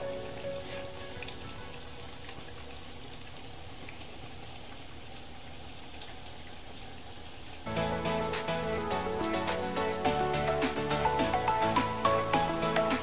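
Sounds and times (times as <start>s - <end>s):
bubbling hiss of simmering pot: 0.0s - 13.0s.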